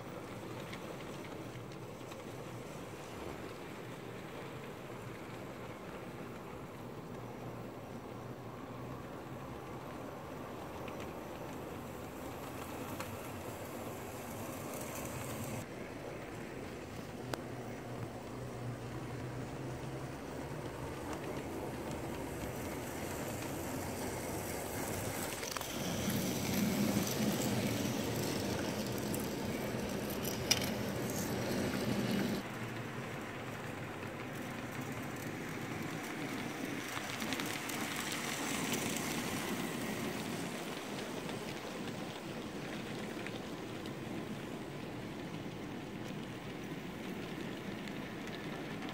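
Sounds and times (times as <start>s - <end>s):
model train wheels rattling: 9.6s - 15.6s, 19.0s - 48.9s.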